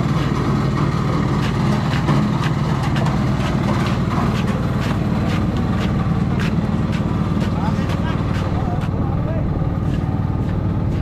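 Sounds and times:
boat engine humming: 0:00.0 - 0:11.0.

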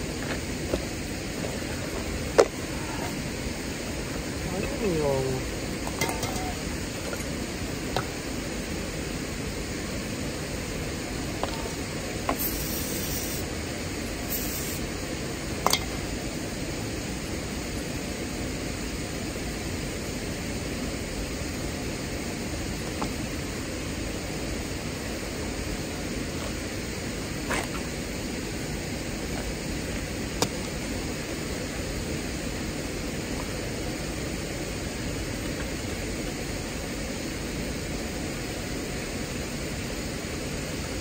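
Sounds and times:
flowing water: 0:00.0 - 0:41.0
metallic clink: 0:05.9 - 0:06.6
aerosol spray can hiss: 0:11.4 - 0:15.1.

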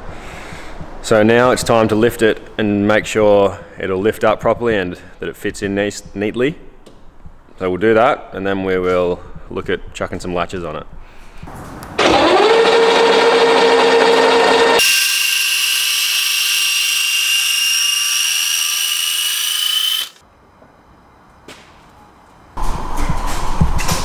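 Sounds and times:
electric actuator motor whine: 0:12.0 - 0:20.2.

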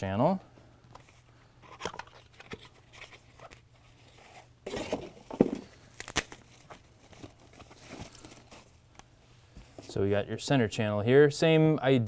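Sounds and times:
packaging rustling and scraping: 0:01.0 - 0:08.8.

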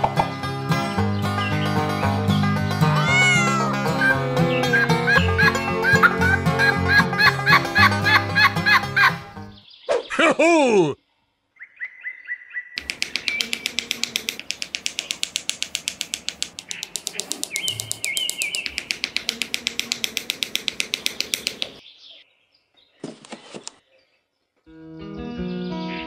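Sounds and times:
bird chirps: 0:09.5 - 0:10.2, 0:11.6 - 0:24.6
rapid even clicking: 0:12.8 - 0:21.8.

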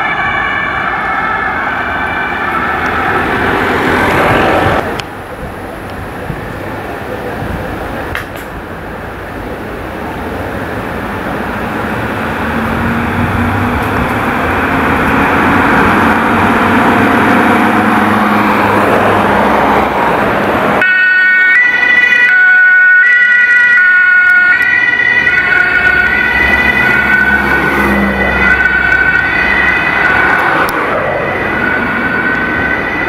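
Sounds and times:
two-tone ambulance siren: 0:00.0 - 0:04.8, 0:12.3 - 0:20.2, 0:20.8 - 0:33.0
road traffic noise: 0:00.0 - 0:33.0.

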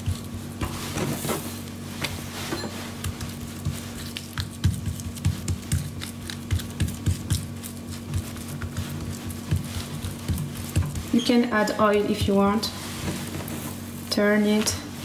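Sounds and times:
steady low hum: 0:00.0 - 0:15.0
hands slapping dough: 0:02.9 - 0:11.2.

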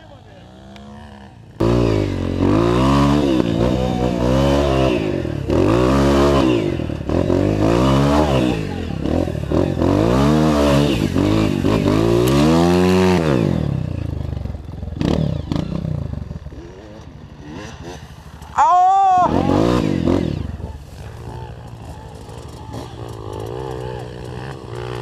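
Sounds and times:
dirt bike engine revving: 0:00.0 - 0:25.0.

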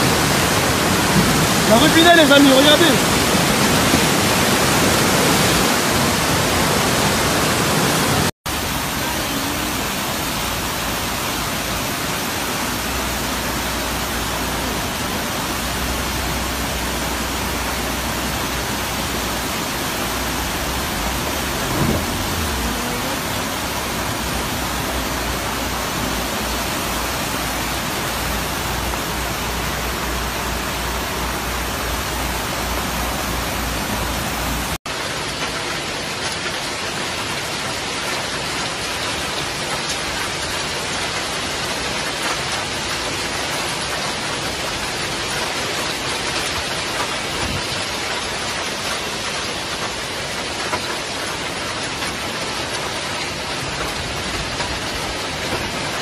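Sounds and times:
heavy rain and floodwater rushing: 0:00.0 - 0:56.0
low bump: 0:20.1 - 0:34.8.

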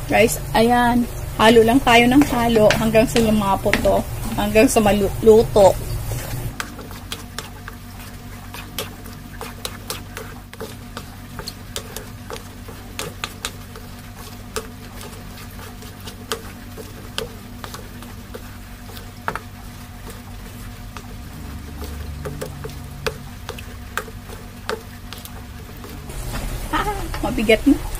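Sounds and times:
steady low hum: 0:00.0 - 0:27.9
wooden spatula scraping a wok: 0:01.9 - 0:27.7
wood tapping on metal: 0:02.1 - 0:04.0.

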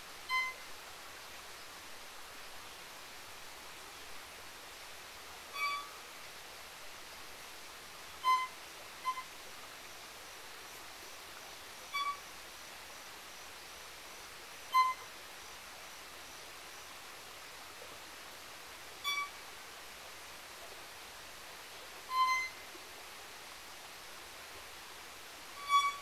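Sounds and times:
violin playing high notes: 0:25.6 - 0:26.0.

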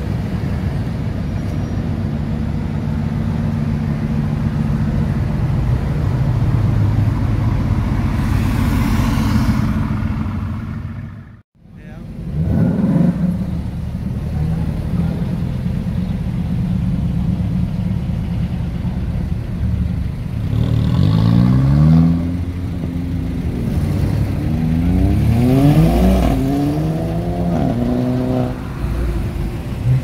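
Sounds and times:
car engines idling and revving: 0:00.0 - 0:30.0.

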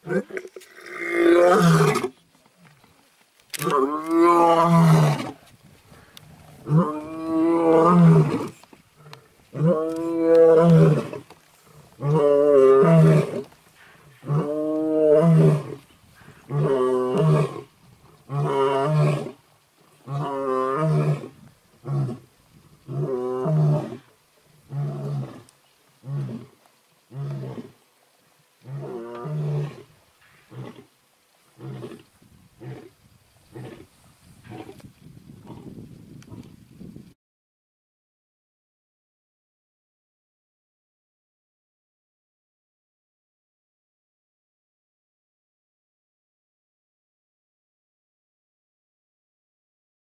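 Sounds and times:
lion roaring: 0:20.0 - 0:27.8, 0:28.6 - 0:30.9, 0:31.6 - 0:34.8.

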